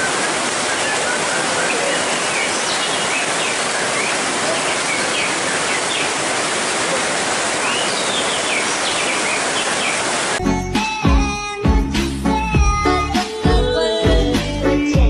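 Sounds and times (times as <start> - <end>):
heavy rain pouring: 0.0 - 10.4
birds singing whistled phrases: 0.7 - 6.2, 7.6 - 10.2
music: 10.4 - 15.0.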